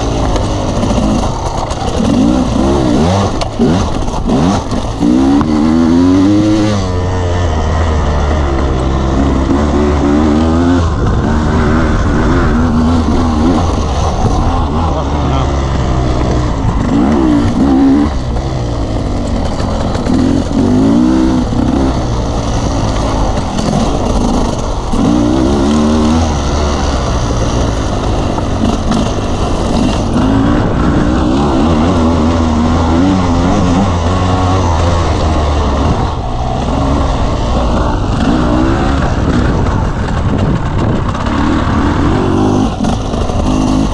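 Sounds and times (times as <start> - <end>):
dirt bike engine revving: 0.0 - 43.9.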